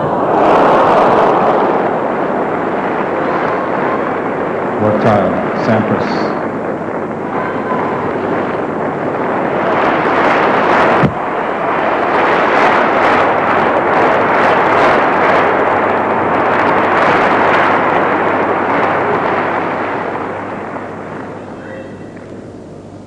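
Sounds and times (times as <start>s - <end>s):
crowd cheering and applauding: 0.0s - 5.0s
sharp crack: 0.8s - 22.5s.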